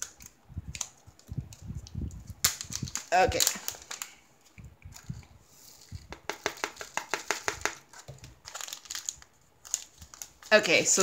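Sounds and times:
plastic bag crinkling: 0.0 - 4.2, 7.8 - 11.0.

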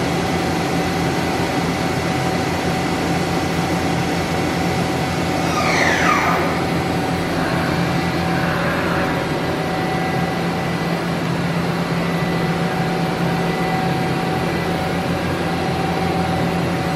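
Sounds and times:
faint steady whines: 0.4 - 16.9
machine motor drone: 0.6 - 16.9.

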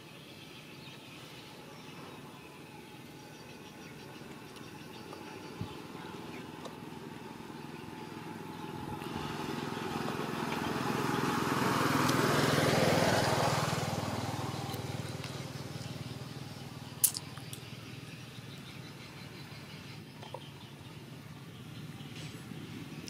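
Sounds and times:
vehicle passing: 5.8 - 17.0
sharp click: 17.0 - 17.6.

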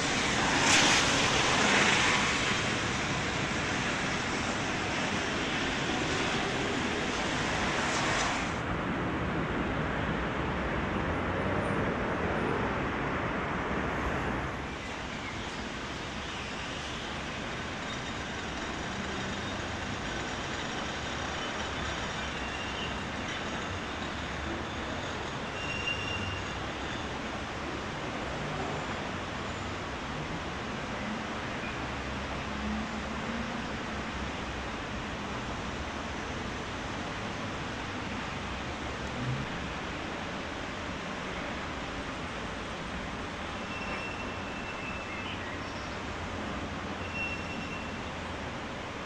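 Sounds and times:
tram on wet tracks hissing: 0.0 - 9.5, 14.2 - 49.0
street traffic noise: 0.0 - 49.0
funicular car running on track: 15.0 - 27.2
faint high squeals: 21.3 - 27.1, 47.0 - 48.1.

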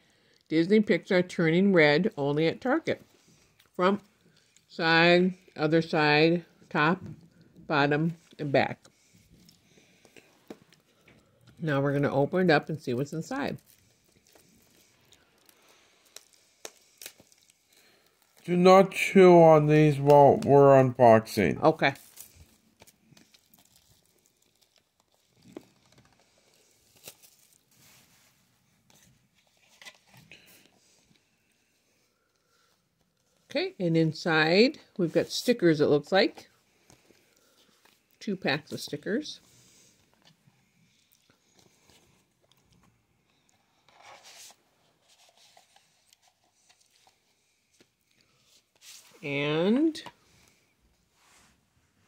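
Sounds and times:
paper packaging rustling: 12.7 - 19.0, 21.9 - 31.2, 43.6 - 50.2
plastic wrap crinkling and tearing: 13.0 - 18.5, 21.9 - 30.3.

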